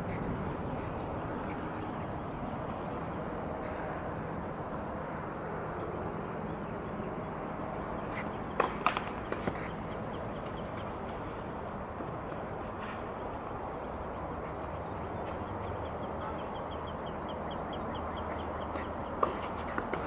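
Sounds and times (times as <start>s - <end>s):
outdoor background hum: 0.0s - 20.0s
tennis ball racket strikes: 8.6s - 9.7s.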